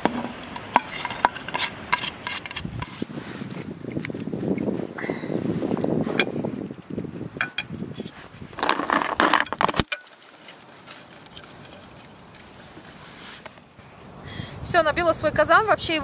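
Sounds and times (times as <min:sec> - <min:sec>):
clinks against a metal pot: 0:00.0 - 0:02.6, 0:07.4 - 0:07.8
rustling of vegetables: 0:00.0 - 0:14.1.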